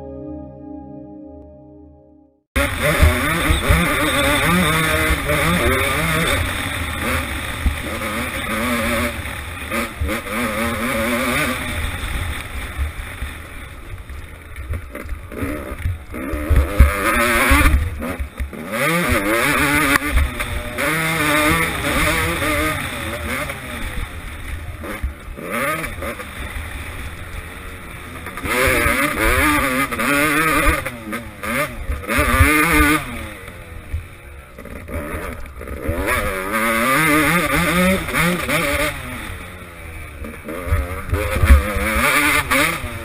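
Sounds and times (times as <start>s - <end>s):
music: 0.0s - 2.5s
motocross bike engine accelerating: 2.6s - 43.0s.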